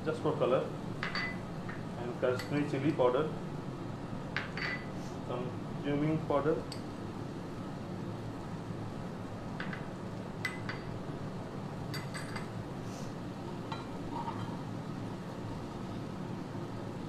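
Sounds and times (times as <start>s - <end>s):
steady low hiss: 0.0s - 17.0s.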